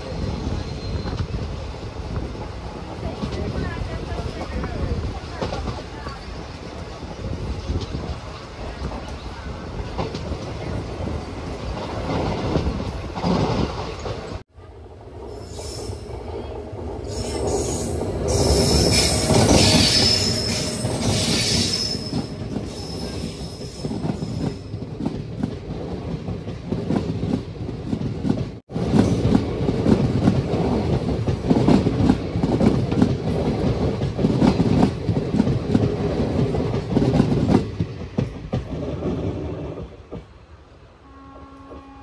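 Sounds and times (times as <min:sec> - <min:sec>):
train wheels rumbling on rails: 0:00.0 - 0:42.0
high wheel squeal: 0:17.0 - 0:24.7.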